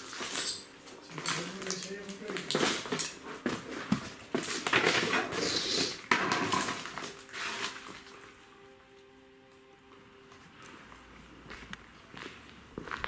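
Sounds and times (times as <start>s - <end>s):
footsteps crunching over paper: 1.0s - 8.6s.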